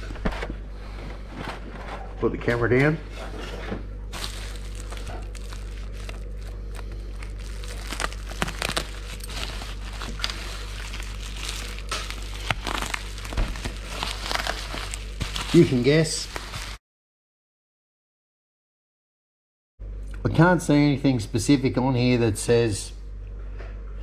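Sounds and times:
bubble wrap crinkling: 4.1s - 16.8s.

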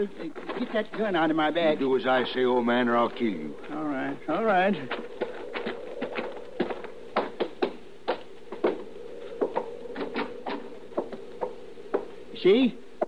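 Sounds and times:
boots footsteps walking: 0.0s - 1.8s, 4.8s - 12.2s.

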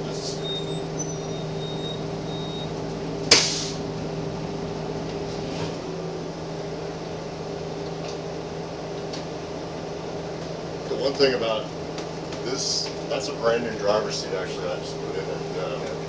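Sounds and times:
bus engine humming: 0.0s - 16.0s
compressed air hiss: 3.3s - 3.8s.

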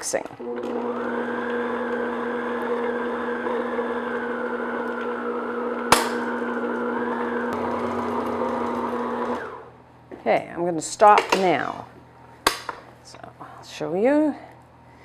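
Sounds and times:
stand mixer running: 0.4s - 9.7s.

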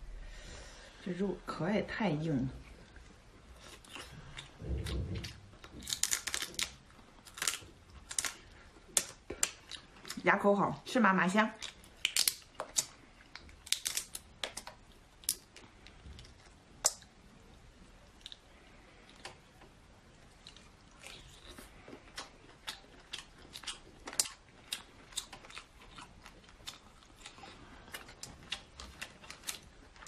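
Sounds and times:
chewing: 2.6s - 10.2s, 11.6s - 30.0s
lobster shell crackling: 5.6s - 10.1s, 11.6s - 15.5s.

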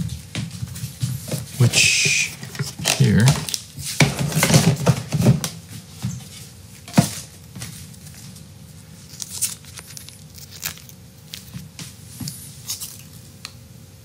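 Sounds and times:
plastic crinkles: 7.6s - 13.4s.

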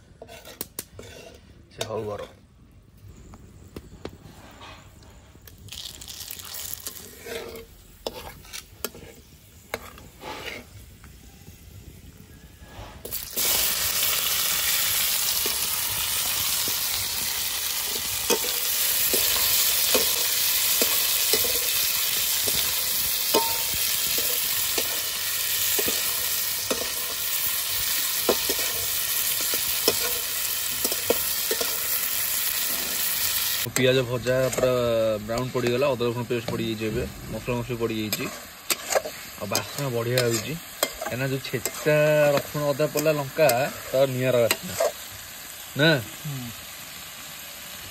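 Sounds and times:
spatula scraping metal pan: 0.0s - 2.4s, 6.9s - 10.8s, 12.6s - 36.6s, 37.4s - 45.0s
onions sizzling in hot oil: 5.4s - 47.9s.

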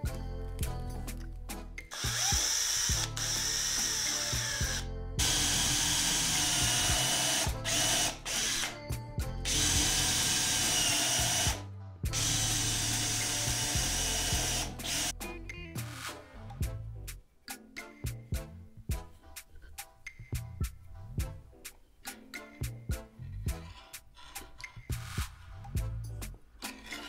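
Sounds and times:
cordless drill motor running: 1.9s - 8.7s, 9.5s - 15.1s.

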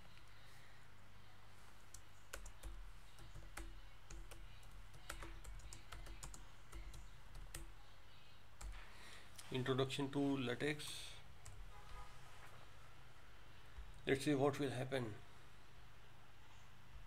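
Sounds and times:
computer keyboard typing: 1.9s - 7.8s.

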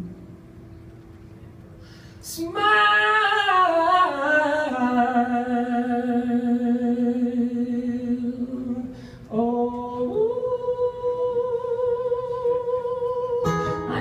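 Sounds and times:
person singing: 9.3s - 14.0s.

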